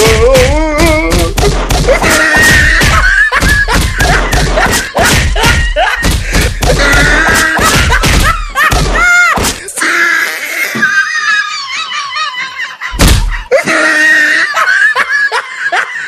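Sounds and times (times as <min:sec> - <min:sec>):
loud rapid thumps: 0:00.0 - 0:09.7, 0:13.0 - 0:13.5
person crying out: 0:00.0 - 0:11.3, 0:13.3 - 0:14.7.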